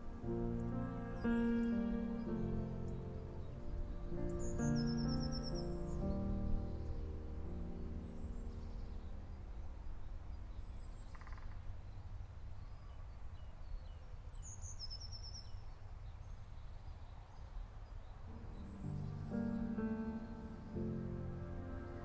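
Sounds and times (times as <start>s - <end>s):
small bird chirping: 0.5s - 21.8s
steady low rumble: 18.3s - 22.0s.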